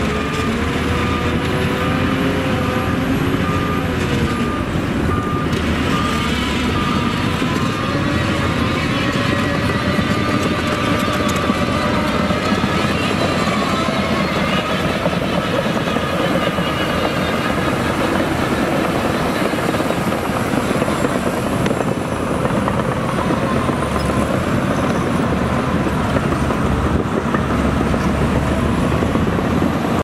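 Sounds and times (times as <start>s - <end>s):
bulldozer diesel engine under load: 0.0s - 30.0s.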